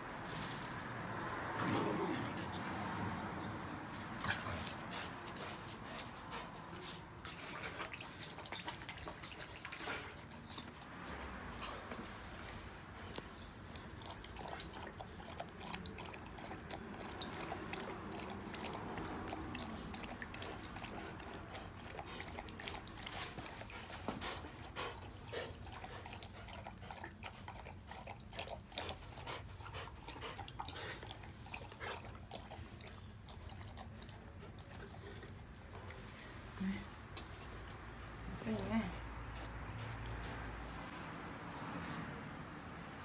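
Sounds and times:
dog lapping water from bowl: 6.6s - 11.2s, 13.4s - 40.5s.

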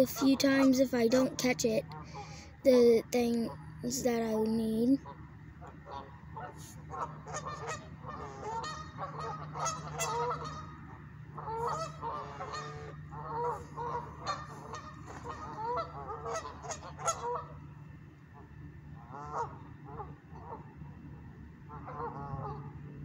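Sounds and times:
low steady hum: 0.0s - 23.0s
geese honking: 5.0s - 17.7s, 18.4s - 20.7s, 21.7s - 22.7s.

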